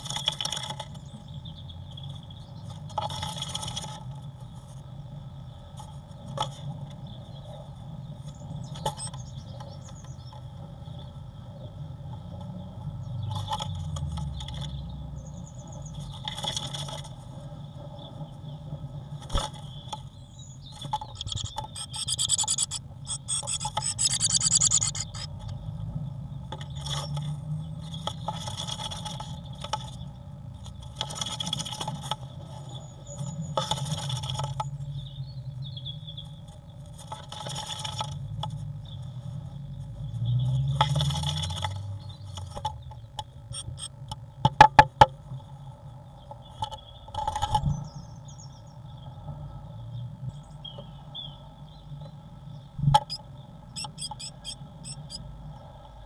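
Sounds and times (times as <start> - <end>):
steady low hum: 17.1 - 26.5.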